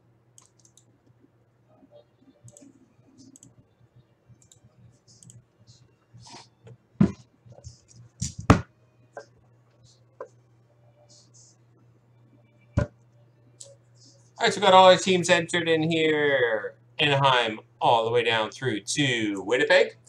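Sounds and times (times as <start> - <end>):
faint low hum: 0.0 - 20.0
keyboard and mouse clicking: 0.4 - 0.9.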